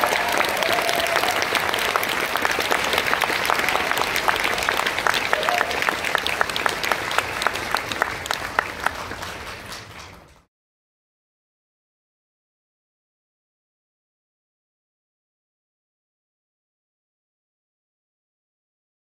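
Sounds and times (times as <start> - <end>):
audience applauding: 0.0 - 10.5.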